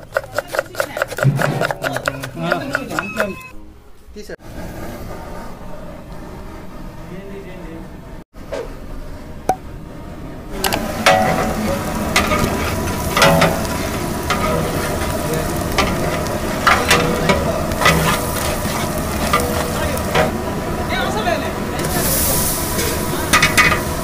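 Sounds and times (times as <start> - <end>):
metal ladle scraping a pot: 0.0 - 3.4, 10.7 - 20.4
onions sizzling in oil: 10.6 - 24.0.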